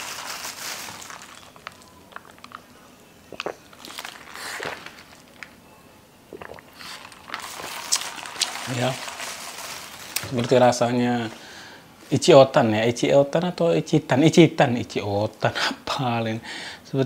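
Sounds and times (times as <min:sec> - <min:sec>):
person sipping and swallowing: 0:03.3 - 0:05.2, 0:06.3 - 0:08.5.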